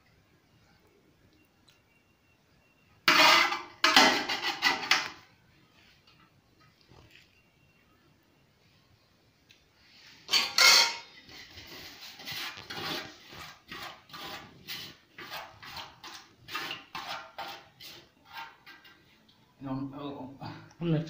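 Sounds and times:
metal pots clattering: 3.0s - 5.3s, 10.2s - 13.0s, 15.2s - 19.1s
utensil scraping and knocking pots: 3.0s - 5.3s, 10.2s - 19.3s.

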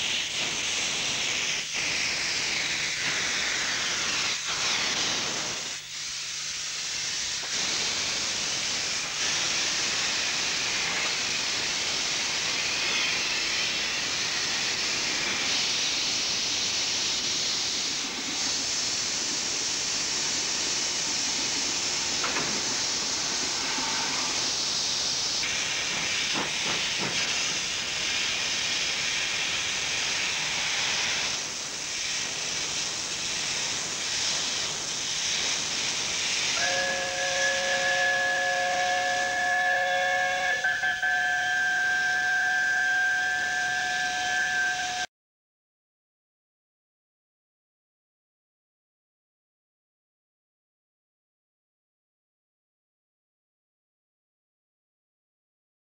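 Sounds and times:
steam hissing: 0.0s - 45.1s
steam locomotive chime whistle: 21.8s - 24.8s, 36.4s - 45.1s.

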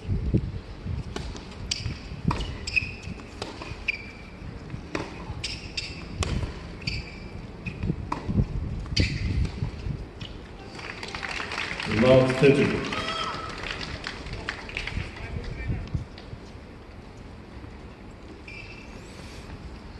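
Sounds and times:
low arena hum: 0.0s - 19.9s
shoes squeaking on court: 1.2s - 10.5s, 18.2s - 19.2s.

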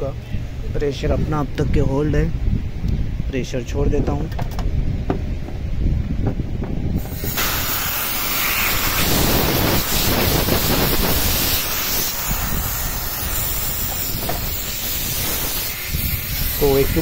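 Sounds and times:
pressurised gas hissing: 7.0s - 17.0s.

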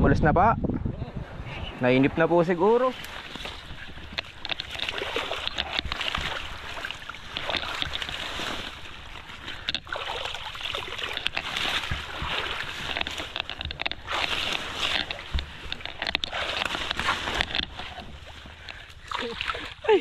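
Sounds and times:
rushing water: 1.3s - 20.0s
small clicks and knocks: 3.0s - 9.9s, 10.5s - 19.0s.

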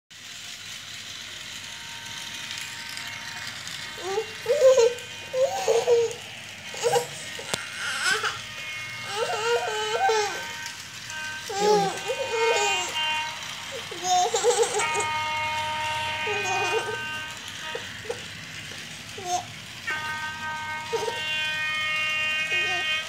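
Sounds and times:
toy train whirring and rattling: 0.1s - 23.0s
small child crying and babbling: 4.0s - 8.4s, 9.1s - 10.6s, 11.5s - 13.0s, 16.1s - 17.2s, 19.2s - 19.5s, 22.5s - 23.0s.

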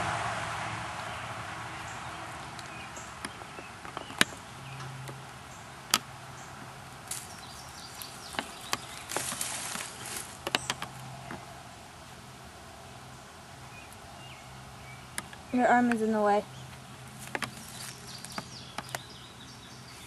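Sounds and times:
wood knocking and clicking: 3.2s - 5.2s, 10.4s - 11.4s, 17.2s - 17.6s
rustling: 7.0s - 11.6s.

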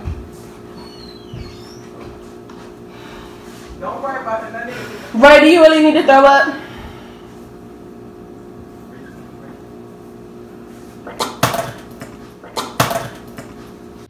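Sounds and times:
man retching loudly: 11.0s - 11.8s, 12.4s - 13.2s.

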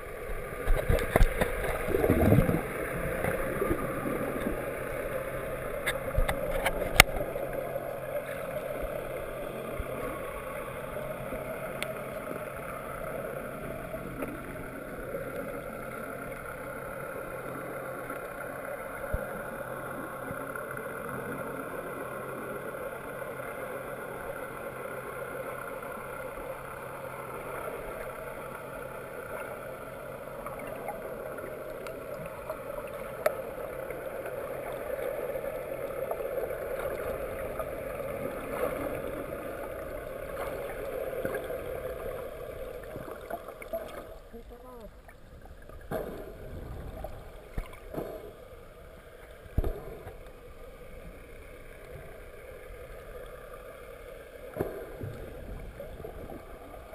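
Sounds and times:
underwater rush of water: 0.0s - 56.9s.

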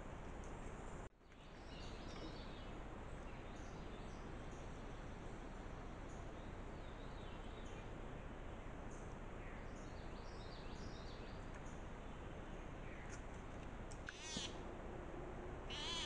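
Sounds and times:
outdoor background hiss: 0.0s - 16.0s
downward-sliding calls: 14.1s - 14.6s, 15.7s - 16.0s.

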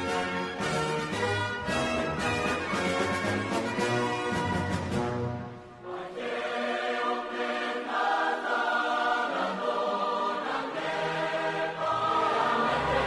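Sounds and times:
choir singing held chords: 5.7s - 13.0s.

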